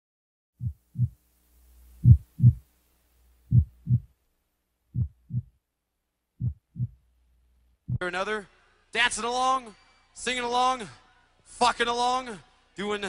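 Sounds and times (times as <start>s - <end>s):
heartbeat double thumps: 0.6s - 1.2s, 2.0s - 2.6s, 3.5s - 4.1s, 4.9s - 5.6s, 6.4s - 7.0s, 7.8s - 8.1s
faint low hum: 0.6s - 13.0s.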